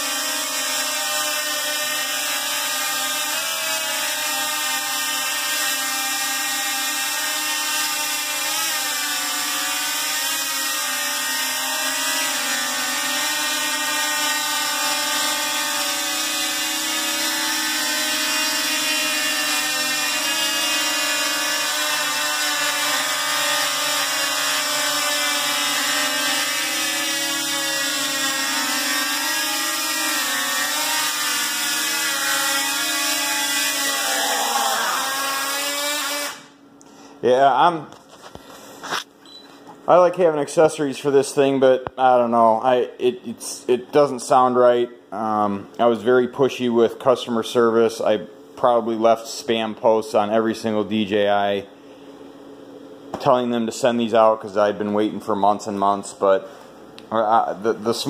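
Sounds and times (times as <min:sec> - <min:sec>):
drone motors whining: 0:00.0 - 0:36.5.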